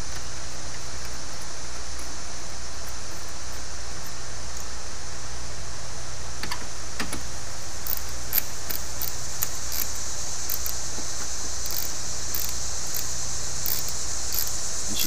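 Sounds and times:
high-pitched insect drone: 0:00.0 - 0:05.2, 0:07.3 - 0:15.0
wrench metallic clicks: 0:07.8 - 0:10.8, 0:11.6 - 0:15.0.

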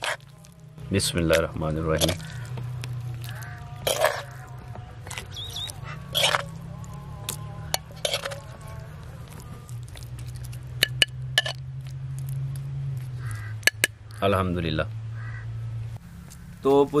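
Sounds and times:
metal spoon scraping clay plate: 0:00.0 - 0:00.3, 0:01.3 - 0:02.6, 0:03.2 - 0:06.7, 0:07.3 - 0:11.6.

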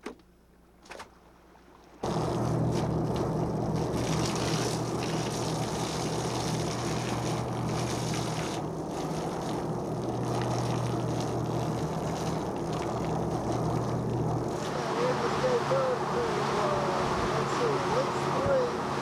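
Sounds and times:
boat motor humming: 0:00.4 - 0:19.0.

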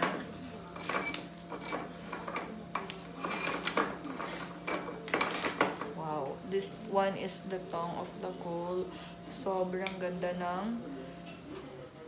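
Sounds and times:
kitchen utensils clattering: 0:00.0 - 0:06.0.

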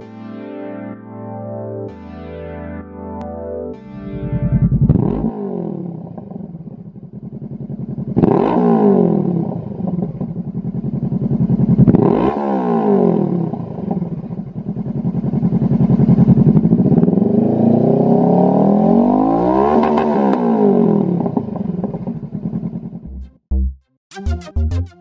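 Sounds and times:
motorcycle engine revving: 0:04.0 - 0:23.2.

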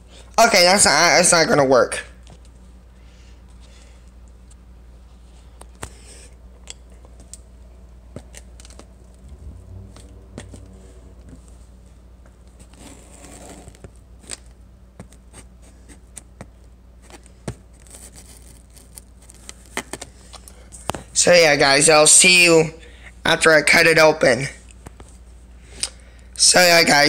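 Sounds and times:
scissors scraping packing tape: 0:17.7 - 0:20.1.

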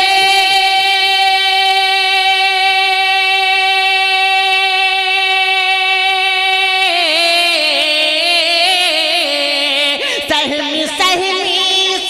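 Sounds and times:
man singing long high note: 0:00.0 - 0:12.0.

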